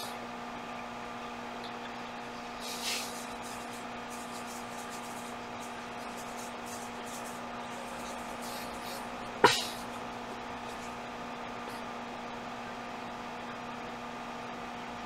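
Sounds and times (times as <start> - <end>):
electrical hum: 0.0 - 15.0
constant hiss: 2.2 - 11.0
brief breathy hiss: 2.6 - 3.4.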